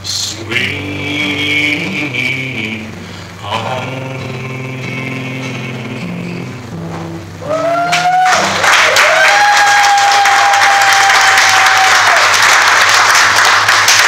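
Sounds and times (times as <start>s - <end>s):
person cheering: 7.4s - 12.4s
audience applause: 7.8s - 14.0s.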